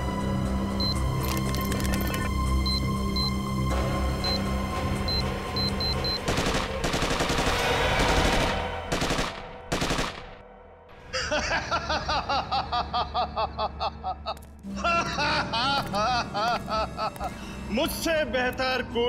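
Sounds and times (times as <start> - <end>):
tense background music: 0.0 - 19.0
rapid bangs like gunfire: 6.3 - 10.4
man laughing in cackles: 11.1 - 17.3.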